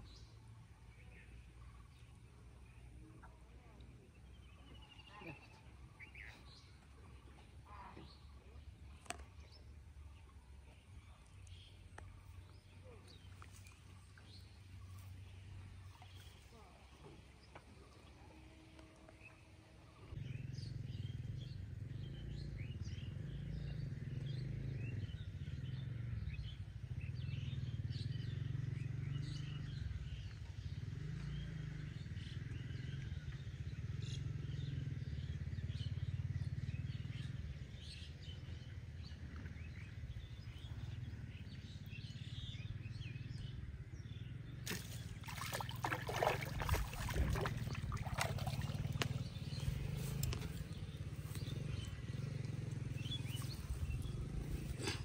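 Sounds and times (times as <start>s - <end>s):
fish splashing in water: 44.7s - 50.6s
steady low drone: 44.7s - 55.0s.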